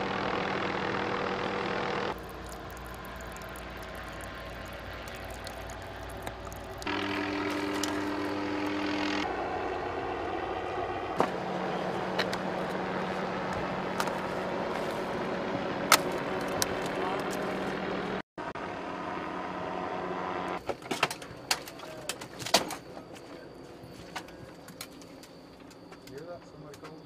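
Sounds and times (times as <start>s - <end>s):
engine humming: 0.0s - 21.6s.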